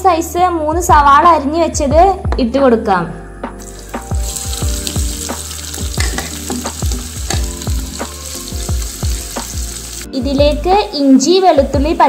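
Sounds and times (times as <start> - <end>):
onions sizzling in oil: 3.6 - 12.0.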